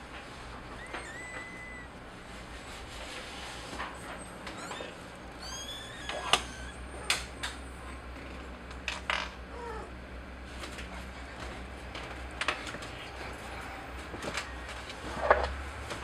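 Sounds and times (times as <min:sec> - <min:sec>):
kittens squeaking: 0:00.6 - 0:02.3, 0:03.9 - 0:07.7.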